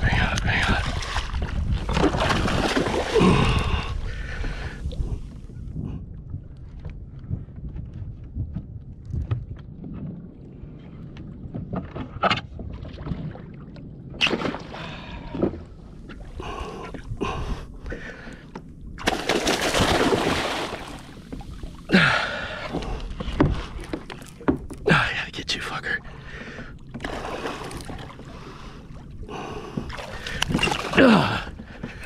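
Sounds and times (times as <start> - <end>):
wind rumbling on microphone: 0.0 - 25.2
water splashing and sloshing: 0.0 - 32.0
knocks and clatters from hull: 22.7 - 24.8.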